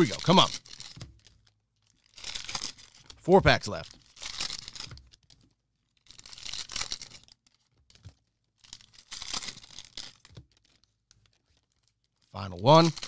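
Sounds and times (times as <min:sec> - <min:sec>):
cellophane wrapper crinkling: 0:00.0 - 0:13.0.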